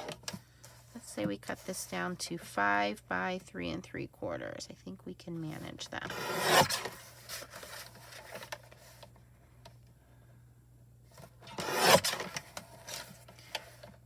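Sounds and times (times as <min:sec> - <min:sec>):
paper trimmer blade swish: 0:06.1 - 0:07.0, 0:11.6 - 0:12.4.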